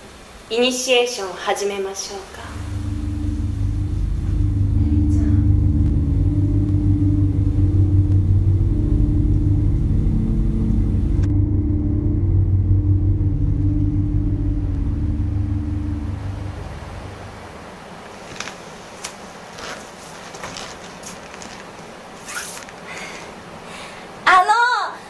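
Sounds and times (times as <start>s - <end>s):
low electronic drone with pulsing throb: 2.5s - 18.0s.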